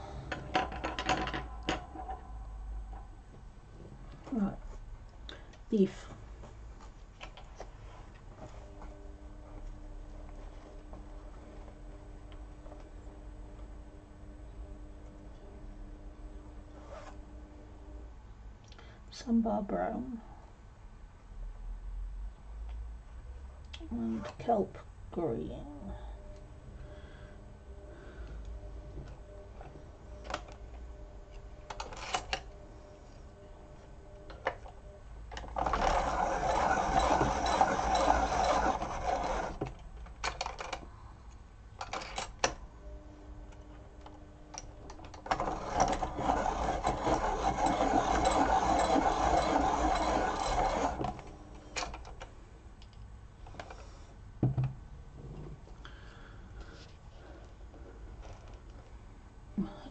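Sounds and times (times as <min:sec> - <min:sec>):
electric pencil sharpener running: 0:35.5 - 0:39.8, 0:45.3 - 0:51.6.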